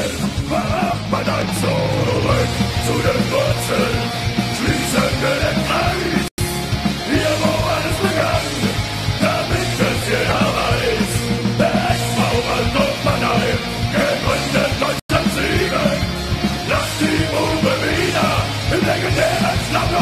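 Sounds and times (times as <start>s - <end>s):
punk rock song: 0.0s - 20.0s
steady bass: 0.0s - 20.0s
shouted vocals: 16.7s - 20.0s.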